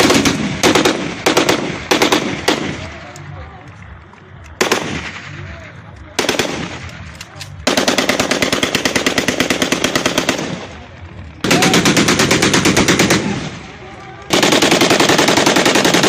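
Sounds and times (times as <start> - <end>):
automatic rifle bursts: 0.0 - 3.8, 4.4 - 16.0.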